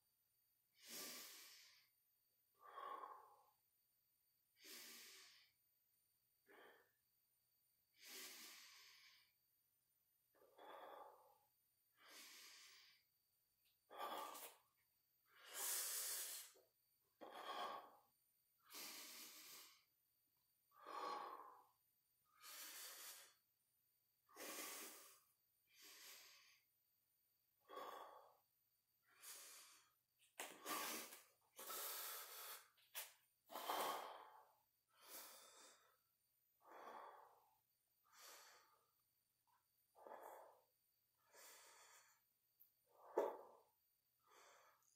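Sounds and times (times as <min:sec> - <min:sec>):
man breathing hard: 0:02.6 - 0:03.6, 0:08.0 - 0:09.4, 0:10.4 - 0:13.1, 0:13.9 - 0:16.6, 0:17.2 - 0:19.9, 0:20.7 - 0:23.4, 0:24.2 - 0:26.6, 0:27.6 - 0:28.4, 0:29.0 - 0:39.0, 0:39.9 - 0:42.3, 0:42.9 - 0:44.9.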